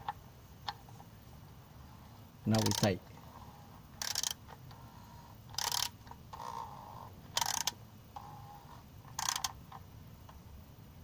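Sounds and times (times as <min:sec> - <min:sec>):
ratchet clicking: 0:02.5 - 0:02.9, 0:04.0 - 0:04.4, 0:05.5 - 0:06.7, 0:07.4 - 0:07.8, 0:09.1 - 0:09.6.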